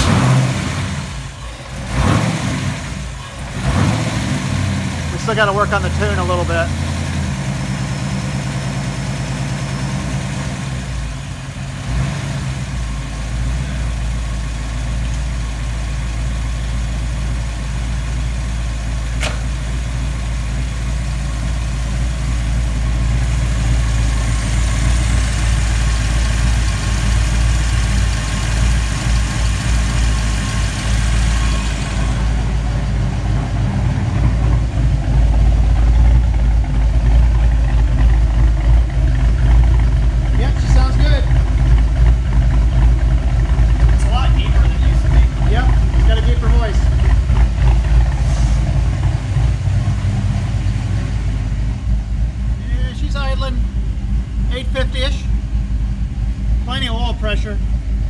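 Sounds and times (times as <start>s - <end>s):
car engine idling: 0.0s - 58.0s
sharp click: 19.2s - 19.5s.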